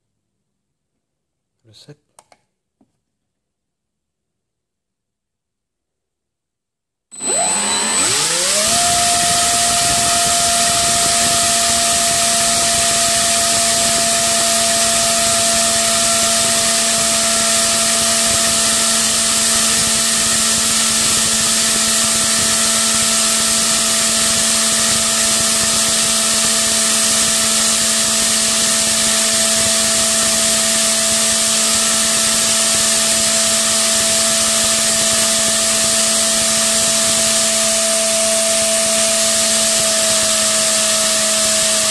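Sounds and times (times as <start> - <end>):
electric motor whining: 7.1 - 41.9.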